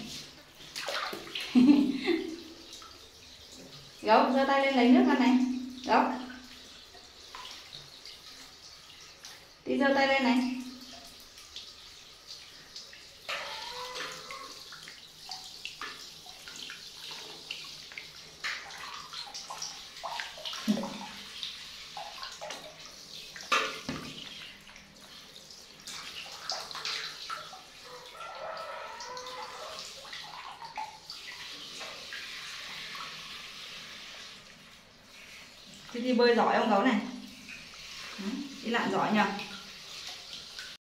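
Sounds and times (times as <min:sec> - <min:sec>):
water splashing in bath: 0:00.0 - 0:40.8.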